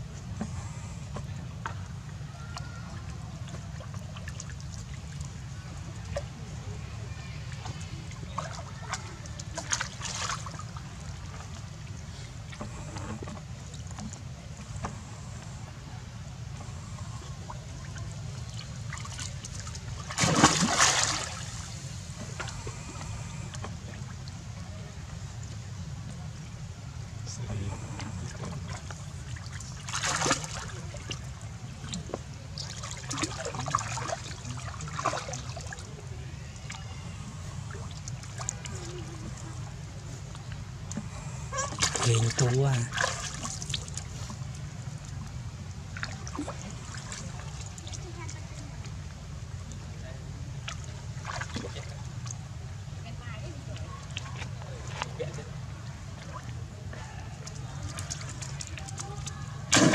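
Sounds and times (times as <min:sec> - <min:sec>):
water splashing: 0:00.4 - 0:26.5, 0:27.3 - 0:59.9
steady low rumble: 0:03.0 - 0:36.3.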